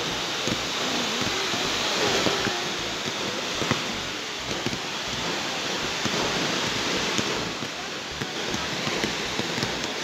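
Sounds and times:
firework fountains hissing: 0.0 - 10.0
fireworks crackling: 0.0 - 10.0
firework shells popping: 0.1 - 10.0.

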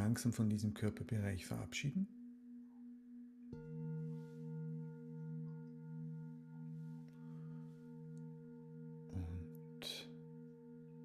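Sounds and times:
singing bowls ringing: 2.1 - 11.0.

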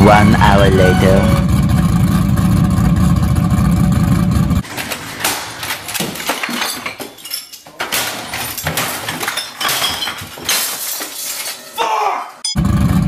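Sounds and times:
crashes and knocks: 4.6 - 11.6
glass bottles clinking and breaking: 4.6 - 11.8.

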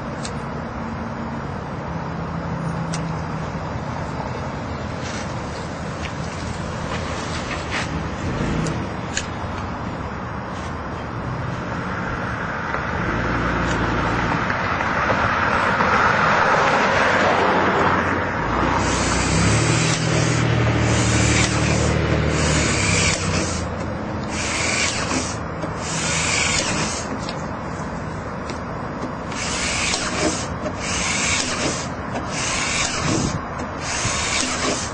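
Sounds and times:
steady rushing noise: 3.1 - 34.9
low motor hum: 17.8 - 34.4
cordless drill bursts: 18.8 - 27.1, 29.3 - 34.9.

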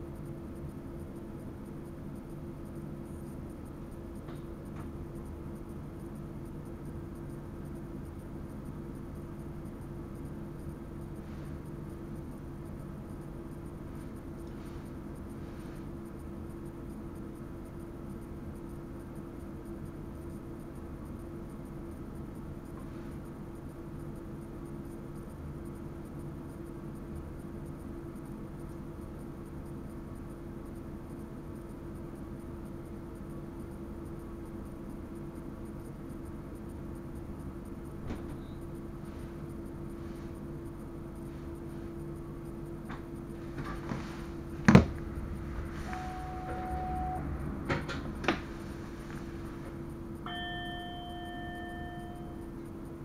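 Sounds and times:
constant hum: 0.0 - 53.0
train rumbling: 43.7 - 49.8.

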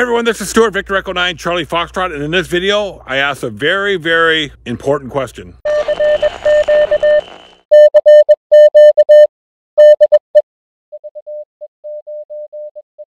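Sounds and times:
morse code beeping: 5.7 - 10.4.

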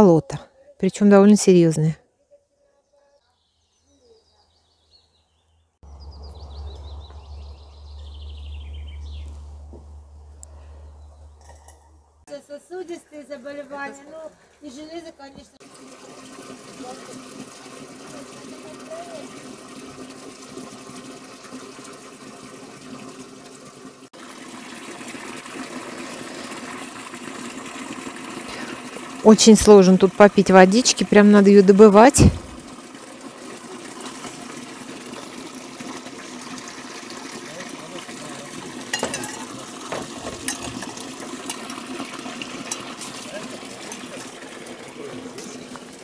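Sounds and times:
songbird singing: 2.3 - 12.0
water splashing into metal trough: 15.6 - 23.5, 24.2 - 46.0.

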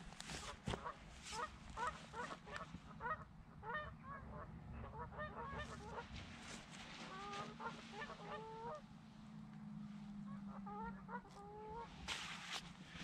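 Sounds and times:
geese honking: 0.5 - 8.9, 10.2 - 12.0.

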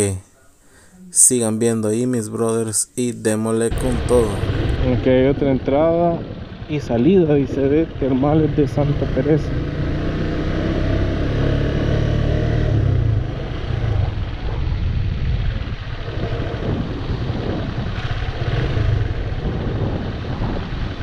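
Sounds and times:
road rumble: 0.0 - 21.0
motorcycle engine running: 3.7 - 21.0
wind on microphone: 12.9 - 21.0.

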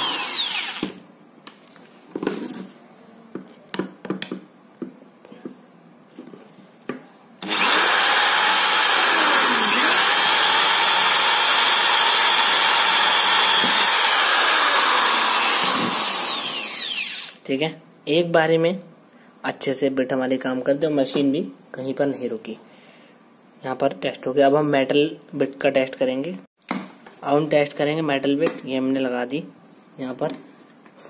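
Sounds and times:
electric drill running: 0.0 - 1.0, 7.4 - 17.4.

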